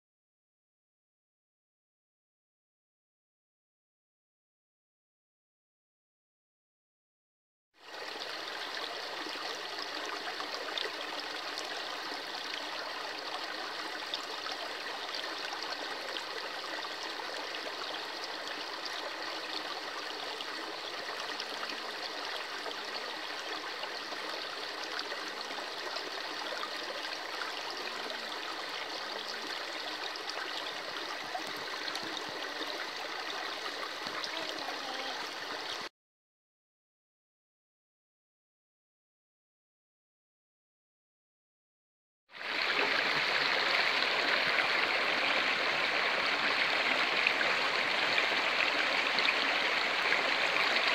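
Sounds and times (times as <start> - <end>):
stream splashing over stones: 7.9 - 35.9, 42.4 - 50.9.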